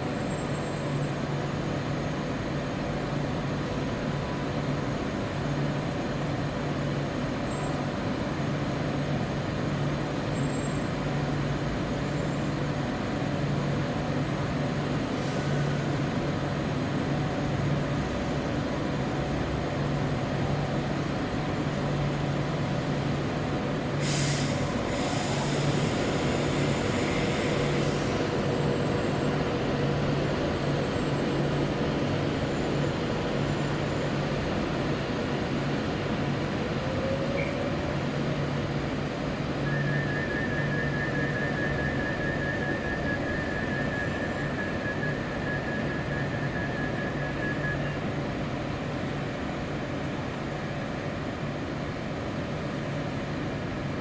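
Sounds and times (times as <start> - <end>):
train hiss: 0.0 - 17.8, 23.6 - 36.7
train humming and rumbling: 0.0 - 54.0.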